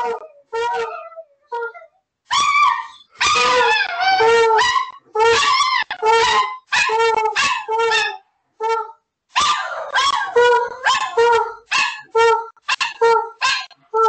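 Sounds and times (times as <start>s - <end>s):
dog howling in wavering calls: 0.0s - 8.2s.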